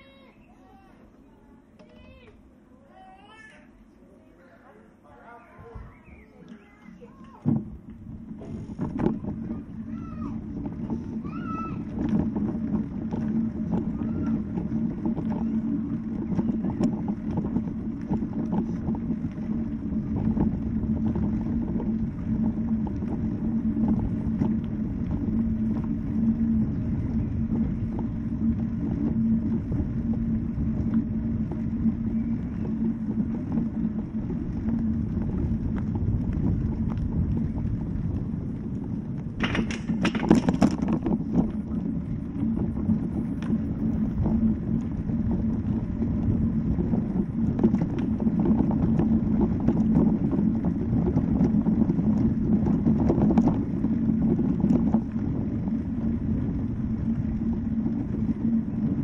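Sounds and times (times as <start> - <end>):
road and wind noise: 4.9 - 59.0
motor scooter engine rumble: 5.7 - 59.0.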